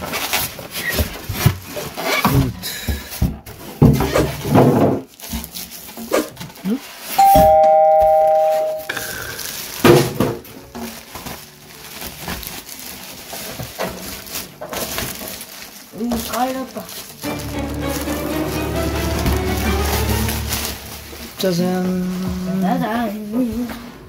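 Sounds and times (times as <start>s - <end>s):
plastic wrapping rustling: 0.0s - 24.0s
two-note doorbell chime: 7.2s - 8.9s.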